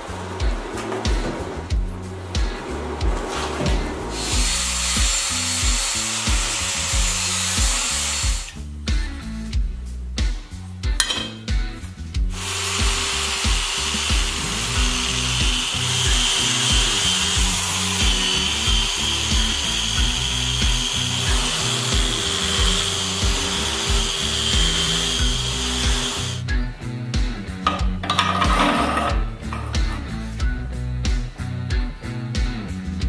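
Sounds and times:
background music with beat: 0:00.0 - 0:33.0
grinder sanding metal: 0:03.0 - 0:08.6, 0:12.3 - 0:26.4.

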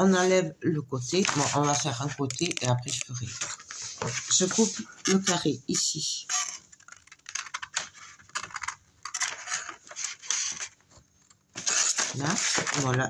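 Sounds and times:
scissors snipping paper: 0:11.6 - 0:13.0.

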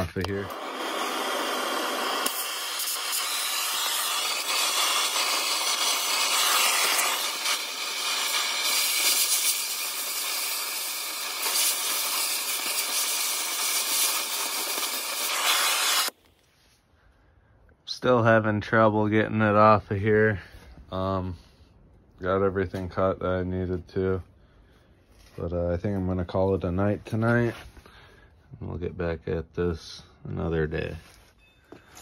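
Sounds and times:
loud steady hiss: 0:00.0 - 0:16.1.

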